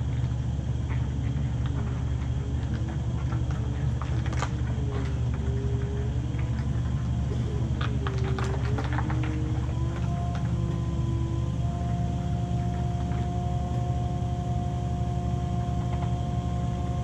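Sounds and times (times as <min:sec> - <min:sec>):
ice resurfacer engine rumbling: 0:00.0 - 0:17.0
whine rising and falling: 0:00.0 - 0:17.0.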